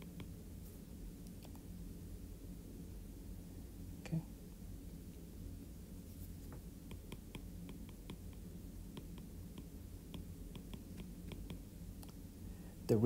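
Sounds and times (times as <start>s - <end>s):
stylus tapping on tablet: 0.0s - 0.4s, 6.5s - 12.2s
low steady hum: 0.0s - 13.0s.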